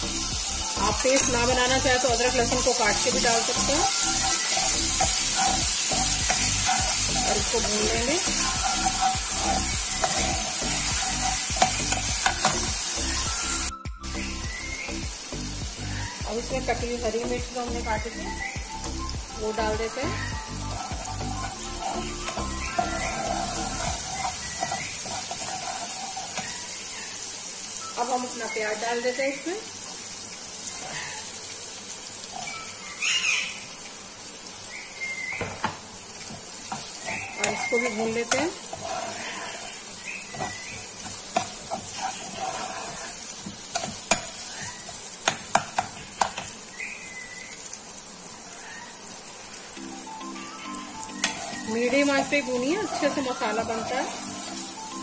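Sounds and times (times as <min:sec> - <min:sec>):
background music: 0:00.0 - 0:24.6, 0:49.8 - 0:55.0
paste sizzling in hot oil: 0:00.0 - 0:55.0
steel spoon stirring: 0:00.8 - 0:12.7, 0:19.9 - 0:26.8, 0:36.7 - 0:45.4, 0:51.2 - 0:54.8.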